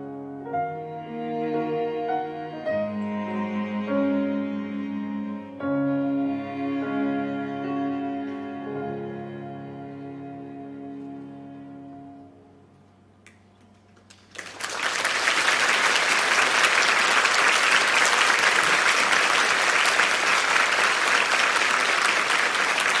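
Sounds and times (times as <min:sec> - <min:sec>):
piano chord: 0:00.0 - 0:12.8
audience applause: 0:14.0 - 0:23.0.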